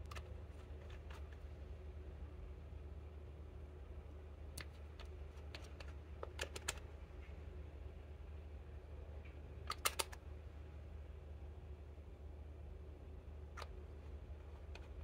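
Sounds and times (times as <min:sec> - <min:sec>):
steady low hum: 0:00.0 - 0:15.0
makeup containers clicking: 0:04.6 - 0:06.8.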